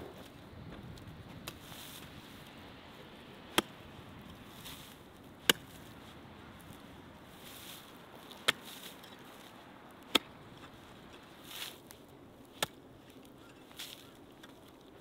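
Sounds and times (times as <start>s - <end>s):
rustle of broken earth: 0.0s - 15.0s
digging fork striking dry soil: 3.5s - 6.0s, 7.4s - 14.6s.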